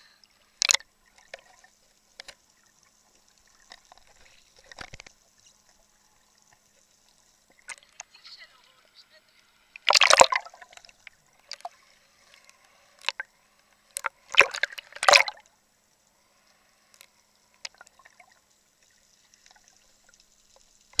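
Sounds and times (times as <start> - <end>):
faint underwater noise: 0.0 - 21.0
sea water splashing: 9.7 - 15.5.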